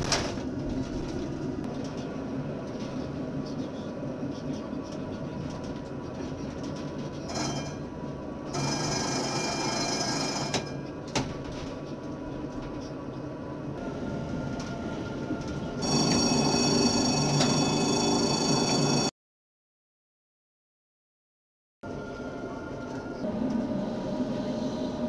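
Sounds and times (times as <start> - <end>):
tram rumbling on track: 0.0 - 19.1, 21.8 - 25.0.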